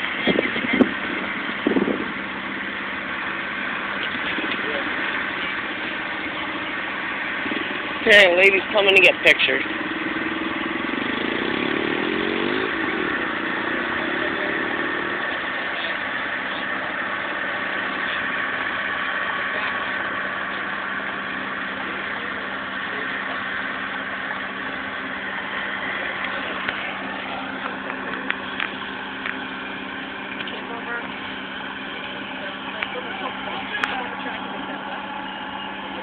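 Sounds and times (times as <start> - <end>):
engine running: 0.0 - 36.0.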